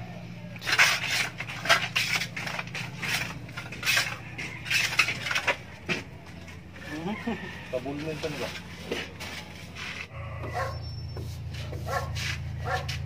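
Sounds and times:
plastering tool scraping on plaster: 0.6s - 5.6s, 7.8s - 10.1s, 11.1s - 13.0s.

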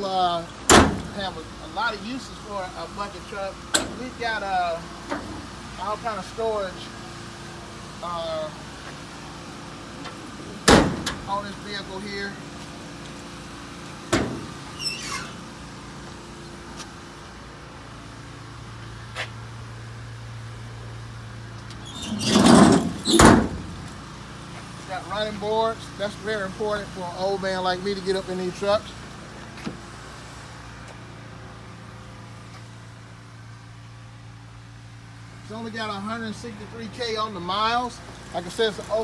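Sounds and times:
vehicle engine idling: 0.0s - 39.0s
metal door squeaking open: 0.5s - 1.2s, 14.1s - 15.5s, 21.7s - 23.9s.

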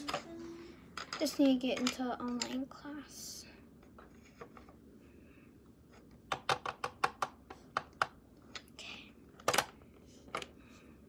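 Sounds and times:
plastic toys clicking and tapping: 0.0s - 2.7s, 6.3s - 8.8s, 9.4s - 10.6s
toys clattering: 0.0s - 2.8s, 9.4s - 10.6s.

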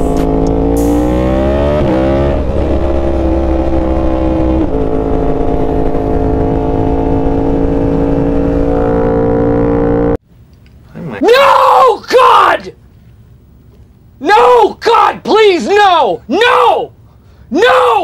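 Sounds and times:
motorcycle engine: 0.0s - 10.2s.

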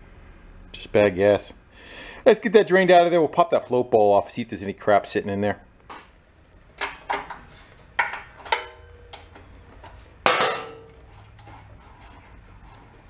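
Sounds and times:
quiet handling noise: 5.8s - 13.0s
hand tools clinking on metal: 8.0s - 9.5s.

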